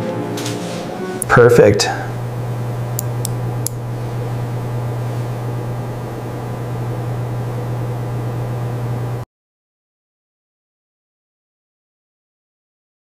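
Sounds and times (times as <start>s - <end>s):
low hum: 1.2s - 9.2s.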